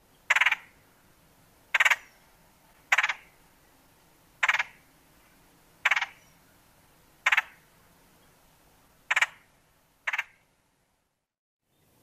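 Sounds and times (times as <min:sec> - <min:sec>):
woodpecker rattle call: 0:00.2 - 0:00.8, 0:01.7 - 0:02.2, 0:02.8 - 0:03.4, 0:04.4 - 0:04.9, 0:05.8 - 0:06.4, 0:07.2 - 0:07.7, 0:09.0 - 0:10.5.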